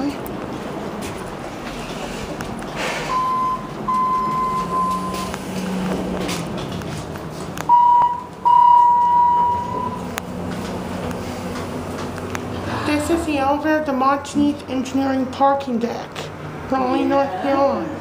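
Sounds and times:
elevator electronic beeps: 3.0s - 5.4s, 7.7s - 10.2s.

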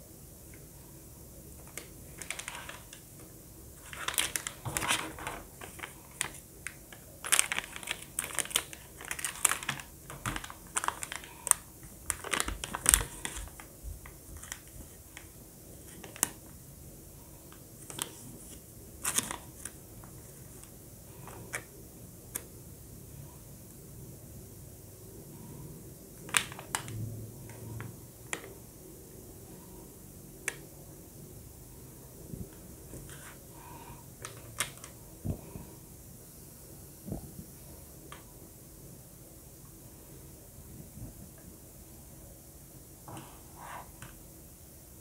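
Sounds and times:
plastic pouches crinkling: 1.6s - 3.0s, 3.8s - 16.5s, 17.5s - 20.7s, 26.2s - 27.0s.

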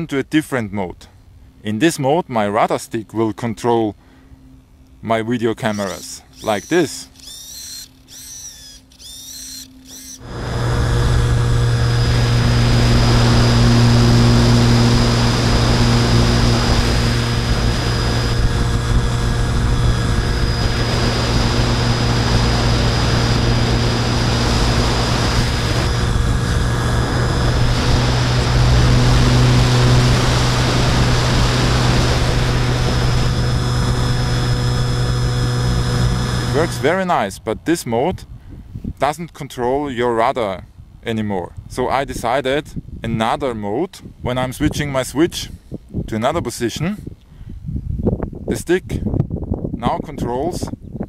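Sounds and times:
model plane motor and propeller: 5.4s - 37.1s
airflow noise: 5.5s - 37.0s.

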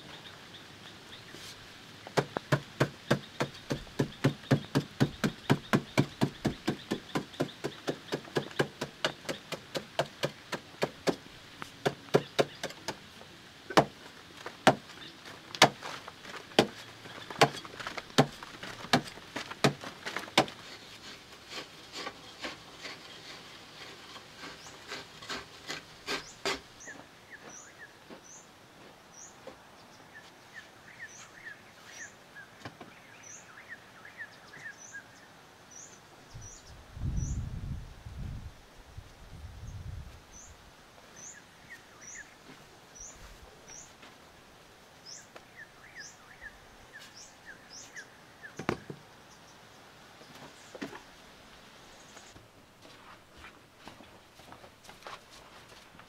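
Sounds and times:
bird chirping: 2.2s - 11.0s, 11.9s - 13.0s, 45.0s - 50.8s.

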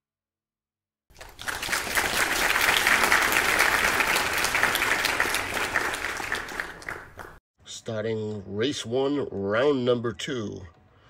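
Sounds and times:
crowd applause: 1.1s - 7.4s.

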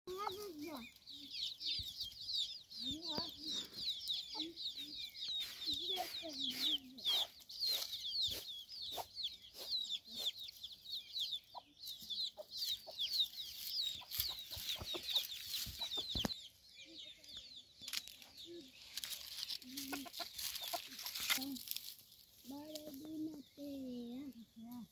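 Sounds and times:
dry leaves crunching underfoot: 0.1s - 1.1s, 5.4s - 10.3s, 13.2s - 16.3s, 17.9s - 23.2s
hen clucking: 0.1s - 17.6s, 18.3s - 21.8s
chicks peeping: 0.1s - 24.8s.

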